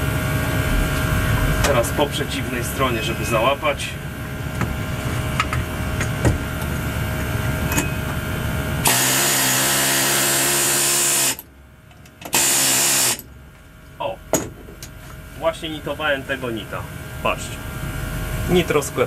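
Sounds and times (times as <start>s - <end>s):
pneumatic air hammer peening rivet: 8.8s - 11.4s, 12.2s - 13.2s.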